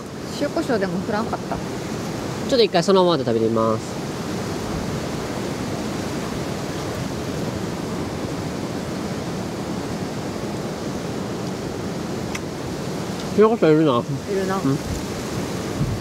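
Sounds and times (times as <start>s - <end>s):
strong wind rushing: 14.0s - 16.0s.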